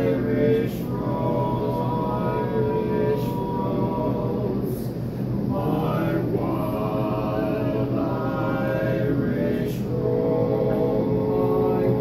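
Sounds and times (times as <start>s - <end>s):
male vocal quartet singing: 0.0s - 12.0s.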